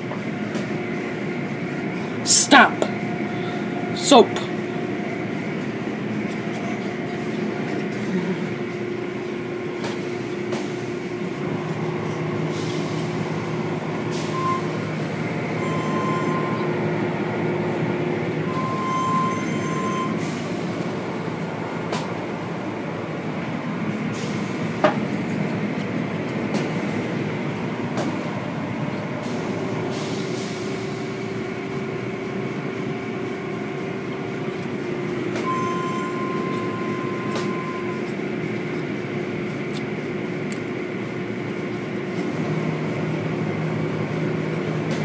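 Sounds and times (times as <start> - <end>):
car wash machinery hum: 0.0 - 45.0
short high beeps: 14.3 - 14.8, 15.6 - 16.6, 18.5 - 20.2, 35.5 - 38.0.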